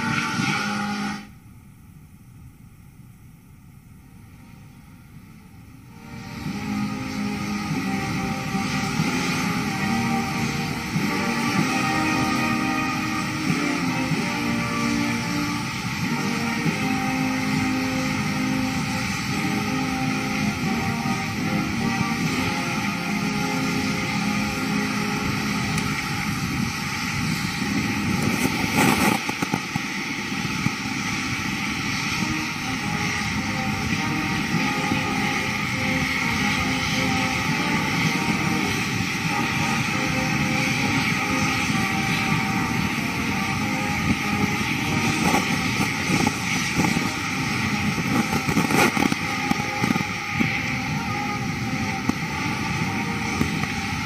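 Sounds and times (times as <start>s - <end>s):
jet engine running: 0.0s - 54.0s
rain rushing: 5.9s - 54.0s
wind noise: 5.9s - 54.0s.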